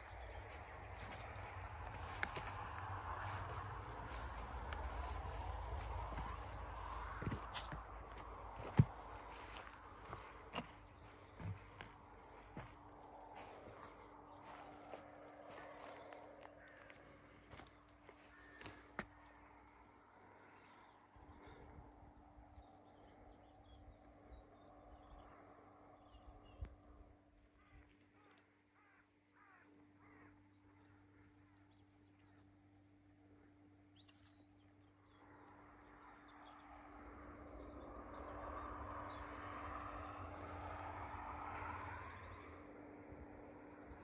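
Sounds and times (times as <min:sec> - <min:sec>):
steady low hum: 0:00.0 - 0:28.3
faint birds chirping: 0:00.0 - 0:44.0.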